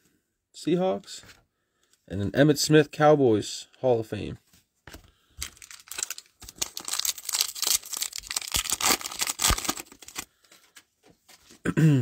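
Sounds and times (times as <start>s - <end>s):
foil wrapper tearing and crinkling: 5.4s - 10.3s.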